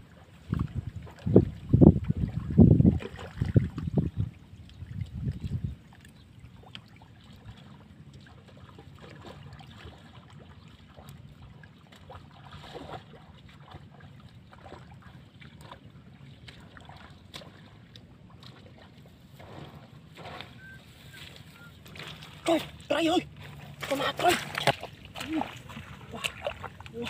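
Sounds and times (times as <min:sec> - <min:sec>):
wind rumble on microphone: 0:00.0 - 0:06.3
faint grass rustling: 0:19.0 - 0:26.1.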